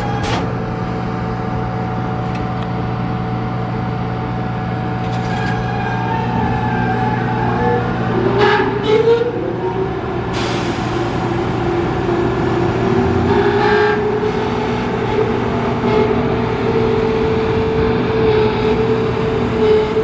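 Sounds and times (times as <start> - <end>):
electric train whine: 0.0 - 20.0
hiss: 10.4 - 11.7.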